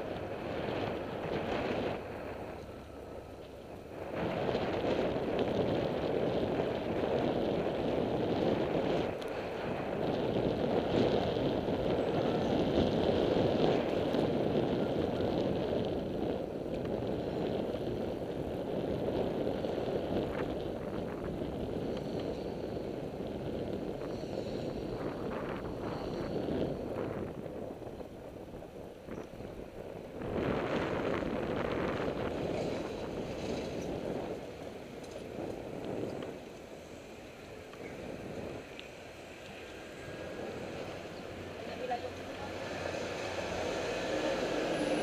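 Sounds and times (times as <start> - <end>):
wind on microphone: 0.0 - 45.0.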